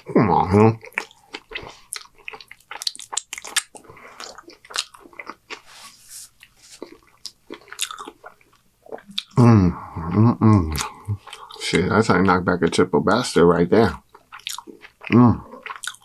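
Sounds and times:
chewing with wet mouth clicks: 0.8s - 5.6s, 6.4s - 9.4s, 10.7s - 11.6s, 14.1s - 16.0s
napkin wiping mouth: 5.6s - 6.8s
man's voice: 15.1s - 15.5s.

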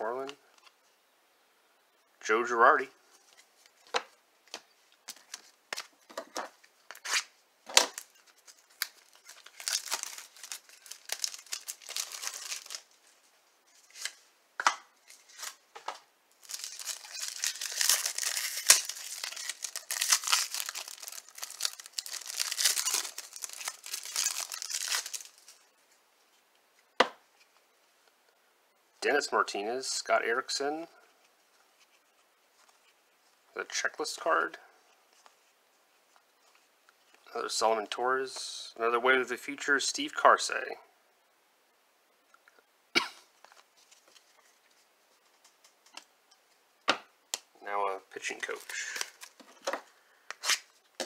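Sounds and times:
card pack wrapper crinkling and tearing: 6.9s - 13.0s, 13.8s - 14.2s, 15.0s - 15.6s, 16.4s - 25.6s, 48.2s - 50.8s.

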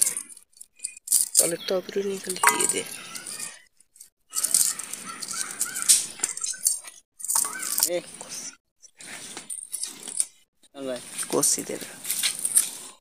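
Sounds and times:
background voices: 1.6s - 3.6s
light metal clinks: 2.4s - 3.0s.

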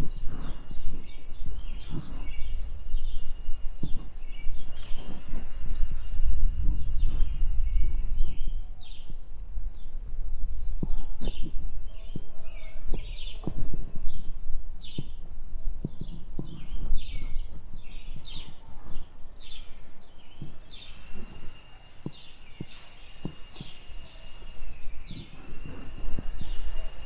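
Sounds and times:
songbird chirping: 0.0s - 27.0s
steady low rumble: 0.0s - 27.0s.

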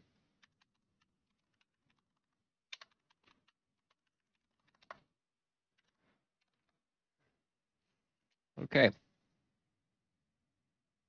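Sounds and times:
computer keyboard keystrokes: 0.4s - 5.1s.

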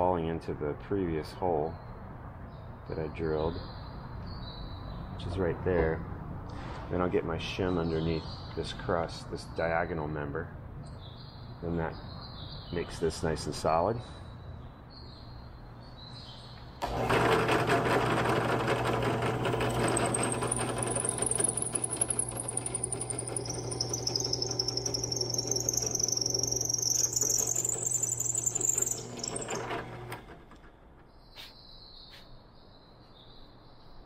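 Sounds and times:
drill bit boring through wood: 16.8s - 30.6s
drill press motor humming: 16.8s - 30.8s
high whine rising in pitch: 20.1s - 29.9s.

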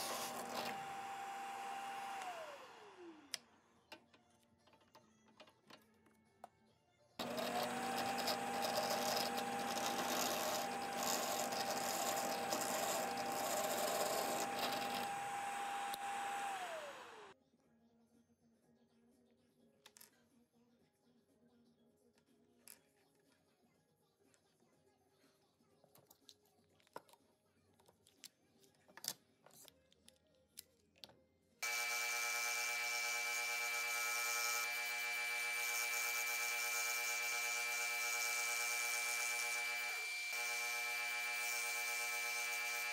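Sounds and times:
power drill boring into wood: 0.0s - 3.4s, 7.2s - 17.4s, 31.6s - 42.9s
scroll saw cutting wood: 0.0s - 3.5s, 7.2s - 17.4s, 31.6s - 42.9s.

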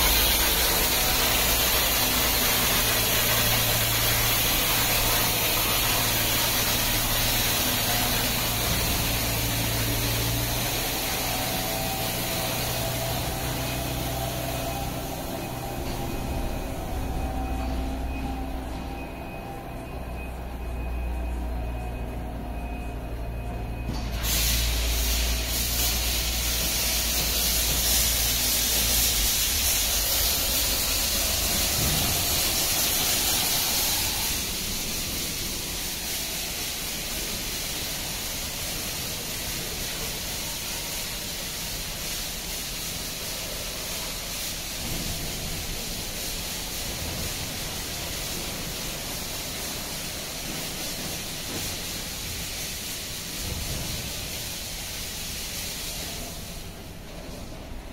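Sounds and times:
high-pressure water jets spraying: 0.0s - 19.3s, 23.8s - 57.6s
car wash motor hum: 0.0s - 57.9s.

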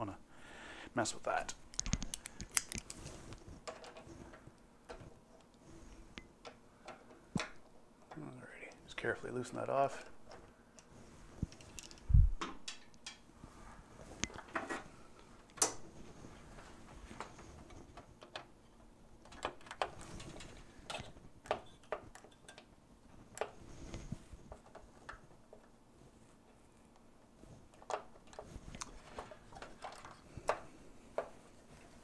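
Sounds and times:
nut driver clicking on metal parts: 1.7s - 3.0s.

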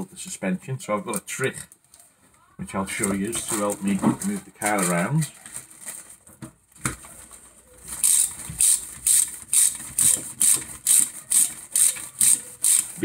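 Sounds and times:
ratchet wrench clicking: 8.0s - 13.0s.

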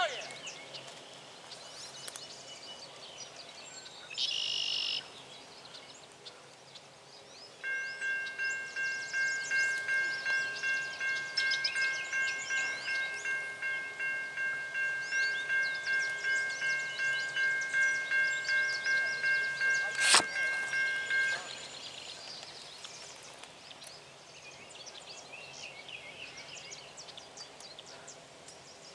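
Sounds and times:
birds chirping: 0.0s - 28.9s
crossing warning bell ringing: 7.6s - 22.0s
short loud high buzz: 19.8s - 20.8s.

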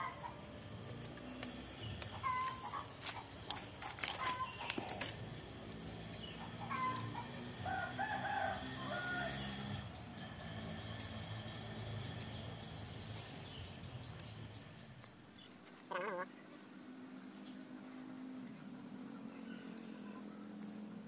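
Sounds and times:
faint outdoor background noise: 0.0s - 21.0s
farm bird wavering call: 2.1s - 3.3s, 6.3s - 8.0s, 15.9s - 16.4s.

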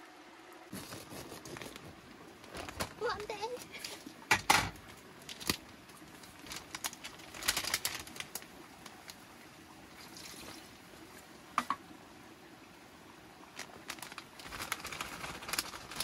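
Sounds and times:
plastic bag crinkling: 0.7s - 3.6s, 6.2s - 8.5s, 13.6s - 16.0s.

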